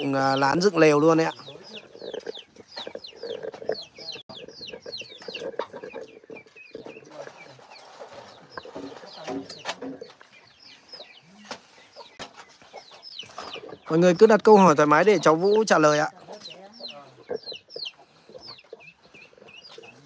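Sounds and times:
chickens clucking and cheeping: 0:00.0 - 0:20.0
bamboo poles knocking: 0:08.6 - 0:10.2.

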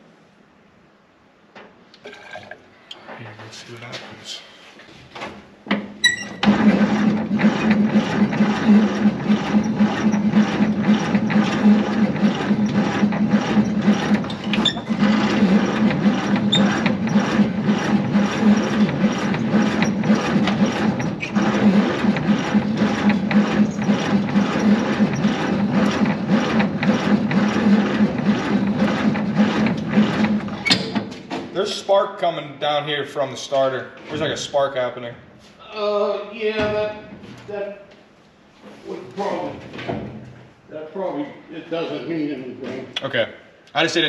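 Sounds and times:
engine cranking on starter: 0:06.3 - 0:31.1.

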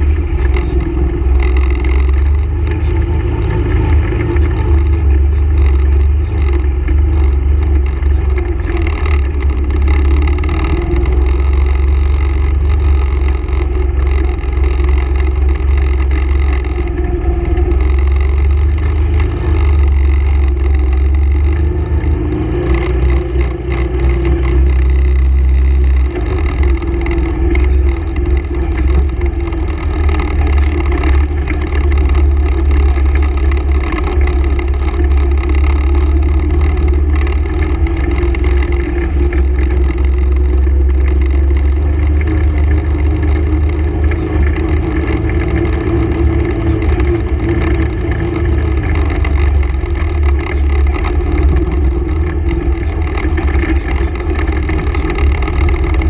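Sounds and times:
atv engine running: 0:00.0 - 0:56.0.

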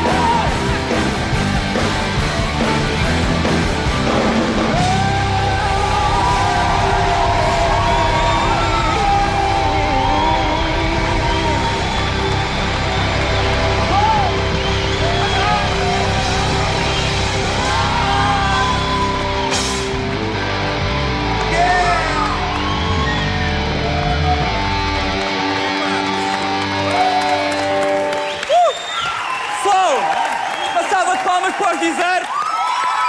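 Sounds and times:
studio audience whooping and yelling: 0:00.0 - 0:01.4, 0:04.2 - 0:33.0
live band music: 0:00.0 - 0:28.6.

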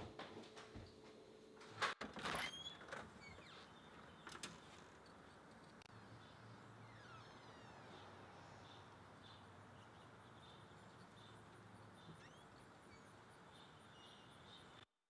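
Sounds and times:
bird chirps: 0:06.0 - 0:14.8.

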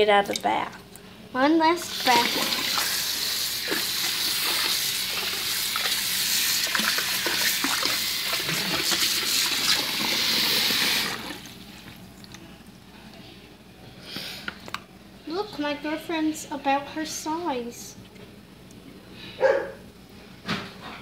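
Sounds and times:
water running into a bathtub: 0:01.6 - 0:12.4.

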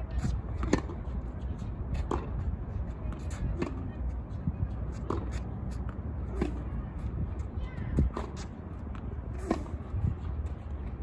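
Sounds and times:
steady low rumble: 0:00.0 - 0:11.0
tennis ball bouncing: 0:00.2 - 0:04.1, 0:04.8 - 0:06.8
tennis racket hitting ball: 0:00.5 - 0:01.0.

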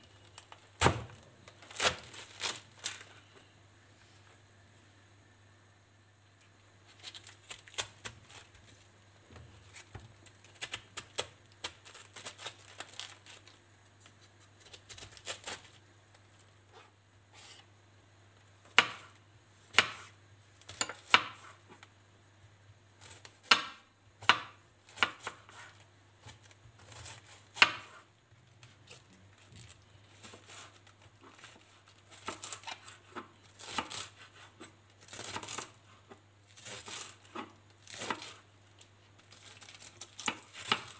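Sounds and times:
knife cutting cabbage on wooden board: 0:23.0 - 0:28.0, 0:29.6 - 0:35.8, 0:36.5 - 0:38.4.

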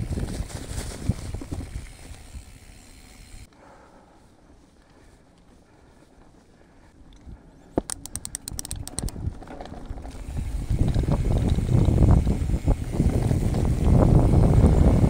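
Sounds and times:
bike rattling: 0:00.0 - 0:03.5, 0:04.3 - 0:15.0
tyres rumbling over dirt trail: 0:00.0 - 0:15.0
bike freehub ticking: 0:01.4 - 0:03.8, 0:06.9 - 0:15.0
wind on microphone: 0:10.2 - 0:15.0.

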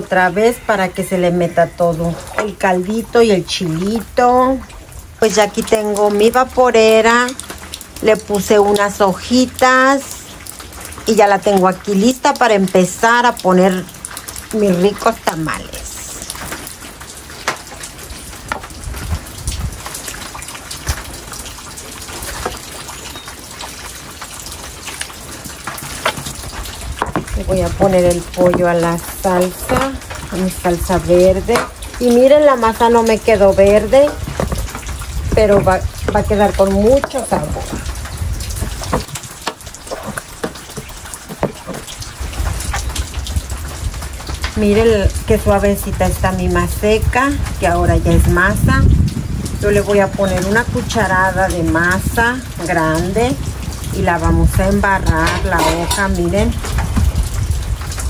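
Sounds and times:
rain hiss: 0:03.1 - 0:58.0
food plopping and scraping from bowl: 0:34.1 - 0:37.9, 0:55.2 - 0:56.3.

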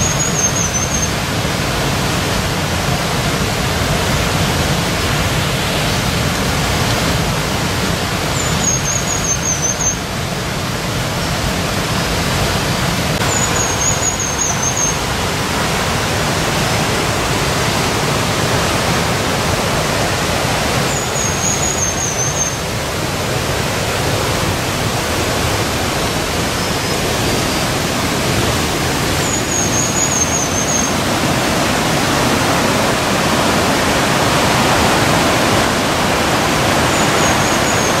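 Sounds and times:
river rushing over rocks: 0:00.0 - 0:38.0
high warbling call: 0:13.2 - 0:15.2.

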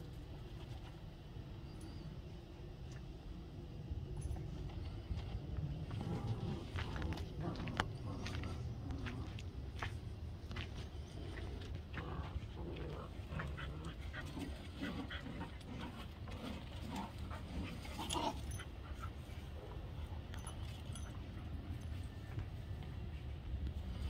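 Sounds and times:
dogs panting: 0:04.6 - 0:22.4
dogs low vocal sounds: 0:05.1 - 0:09.9, 0:10.6 - 0:21.6.

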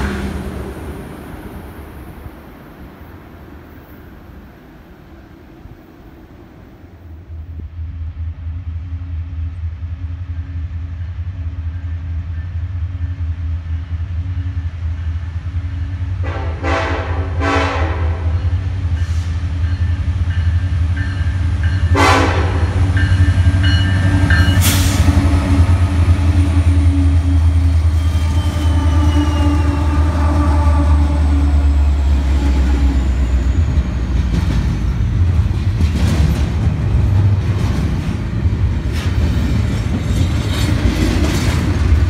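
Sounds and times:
diesel locomotives rumbling: 0:00.0 - 0:42.0
train rolling noise: 0:00.0 - 0:42.0
train horn blasts: 0:16.2 - 0:19.3, 0:21.8 - 0:33.3.

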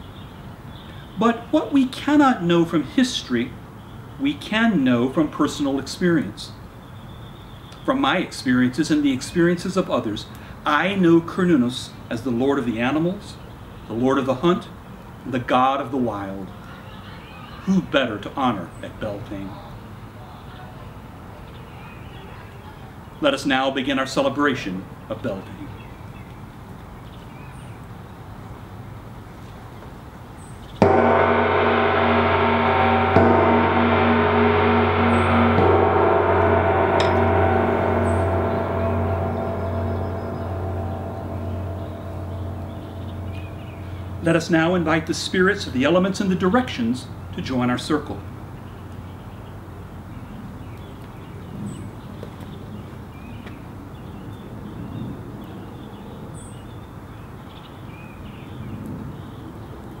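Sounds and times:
gong struck with mallet: 0:30.8 - 0:44.8
pulsing hum: 0:30.8 - 0:44.8.

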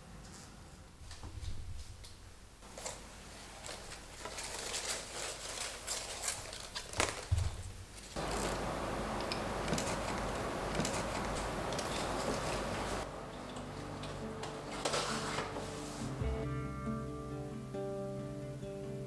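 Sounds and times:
steady hiss: 0:07.6 - 0:13.3.

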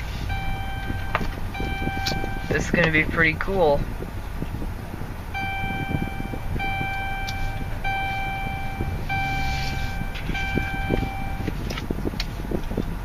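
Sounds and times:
low rumble: 0:00.0 - 0:13.0
electronic beep: 0:00.2 - 0:02.8, 0:05.3 - 0:11.5.

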